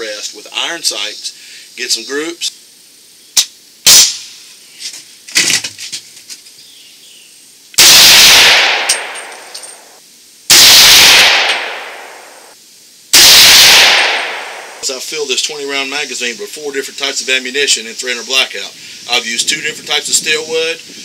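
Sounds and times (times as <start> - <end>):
rifle shots echoing: 7.8 - 9.9, 10.5 - 12.5, 13.2 - 15.0.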